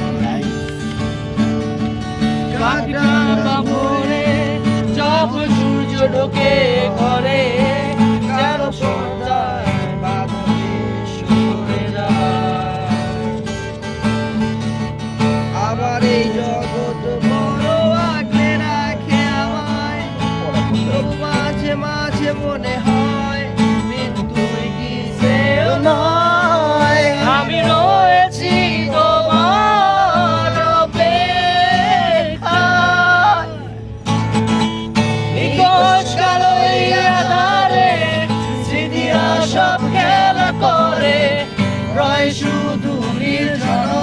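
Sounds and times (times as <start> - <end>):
acoustic guitar strumming: 0.0 - 44.0
man singing: 2.4 - 13.4, 15.5 - 34.0, 35.4 - 44.0.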